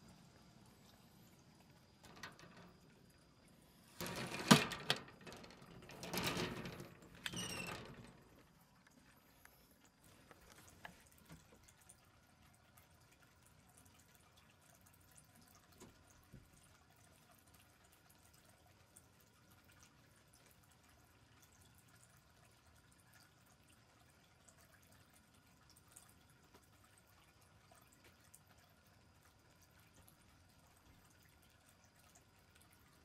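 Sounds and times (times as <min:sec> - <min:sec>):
rustling and knocks on wire cage: 0:02.0 - 0:03.0, 0:04.0 - 0:08.5
high squeak: 0:07.2 - 0:08.0.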